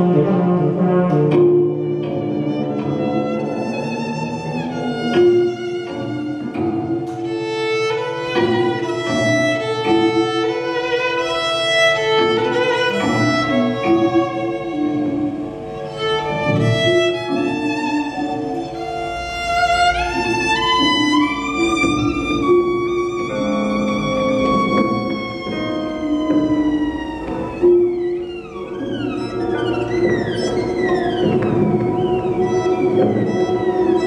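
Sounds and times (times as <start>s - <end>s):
violin and cello ensemble: 0.0s - 34.0s.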